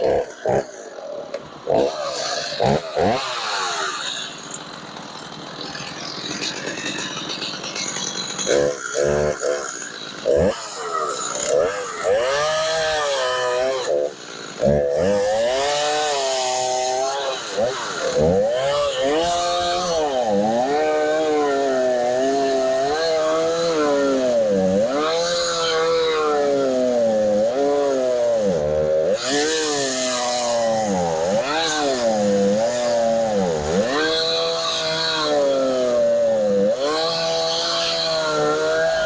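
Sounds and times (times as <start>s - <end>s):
chainsaw cutting through log: 0.0s - 39.0s.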